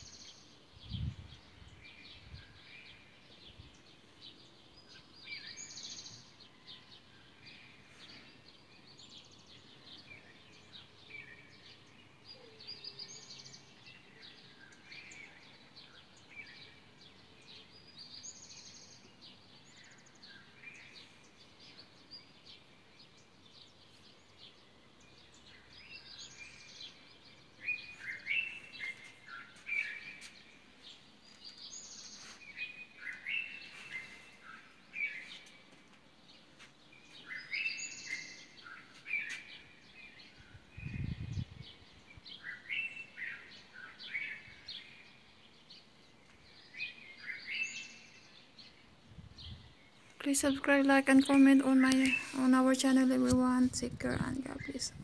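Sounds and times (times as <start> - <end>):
songbirds singing: 0.0 - 55.0
bird chirping phrase: 50.2 - 55.0.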